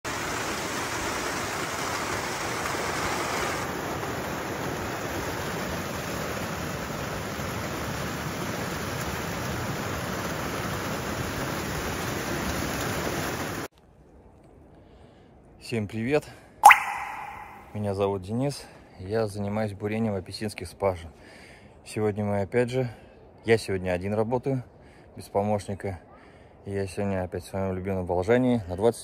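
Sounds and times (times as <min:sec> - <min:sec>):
rain falling on grass: 0:00.1 - 0:13.7.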